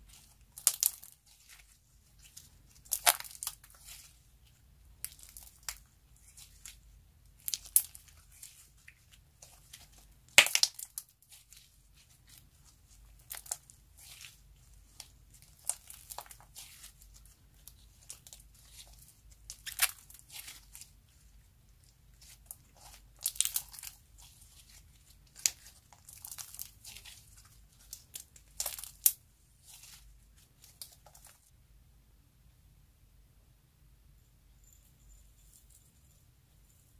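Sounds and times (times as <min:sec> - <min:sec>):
slime crackling and popping: 0:00.1 - 0:20.9, 0:22.1 - 0:30.0.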